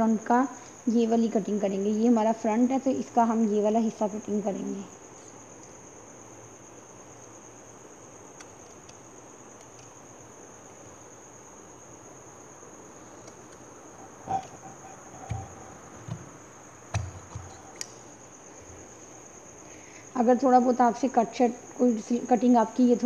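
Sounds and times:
high-pitched whine: 0:13.9 - 0:17.8
sharp clicks and low thuds: 0:14.3 - 0:18.0.

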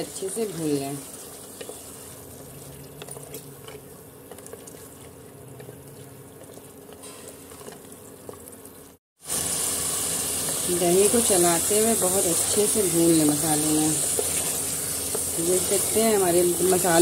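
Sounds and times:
food sizzling and bubbling: 0:00.0 - 0:17.0
spatula scraping a pot: 0:12.4 - 0:16.9.

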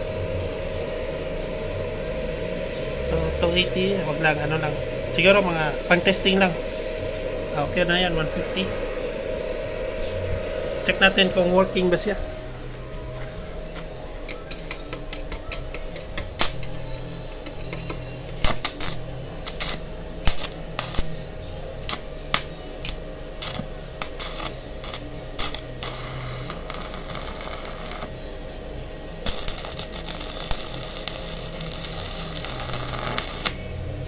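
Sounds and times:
low steady hum: 0:00.0 - 0:34.0
welding electrode snaps and pops: 0:14.3 - 0:16.8, 0:17.4 - 0:21.1, 0:21.8 - 0:28.1, 0:29.2 - 0:33.6
welding arc crackling: 0:14.3 - 0:28.5, 0:29.2 - 0:34.0.

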